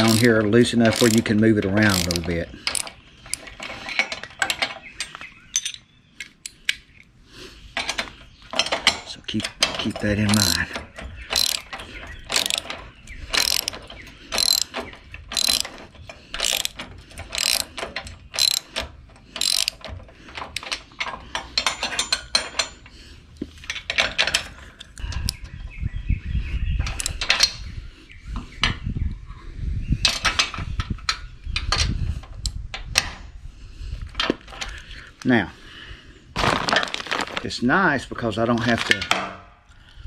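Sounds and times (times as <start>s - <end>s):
ratchet wrench clicking: 0.0s - 3.4s, 10.3s - 10.6s, 11.3s - 11.7s, 12.3s - 12.7s, 13.3s - 15.8s, 16.4s - 17.8s, 18.4s - 18.8s, 19.4s - 19.8s.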